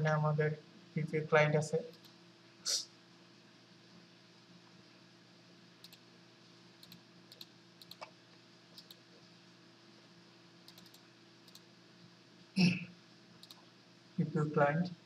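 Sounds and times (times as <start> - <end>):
low steady hum: 0.0 - 15.0
computer mouse clicks: 1.9 - 2.2, 5.8 - 6.0, 6.8 - 8.2, 8.8 - 9.0, 10.6 - 11.7, 13.4 - 13.7.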